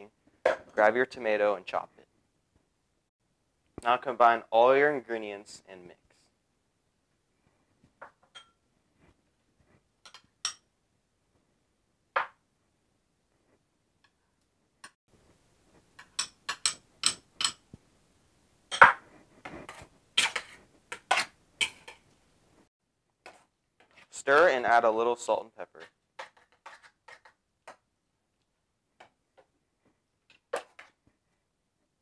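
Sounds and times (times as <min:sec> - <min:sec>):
metal spoon clinking against bowls: 0:08.3 - 0:08.6, 0:10.0 - 0:10.6, 0:16.0 - 0:17.6, 0:20.2 - 0:22.0.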